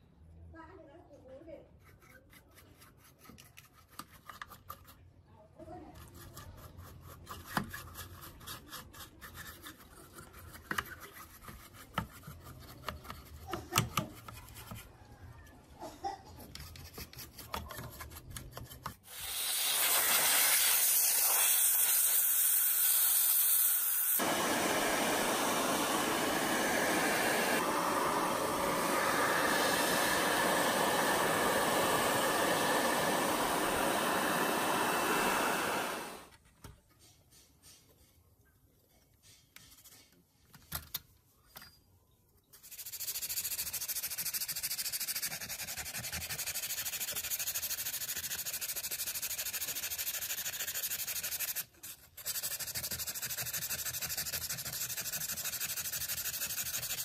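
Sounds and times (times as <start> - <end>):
brush scrubbing circuit board: 6.0 - 15.0, 24.2 - 36.2, 42.6 - 57.0
electric blower rushing air: 23.9 - 36.3.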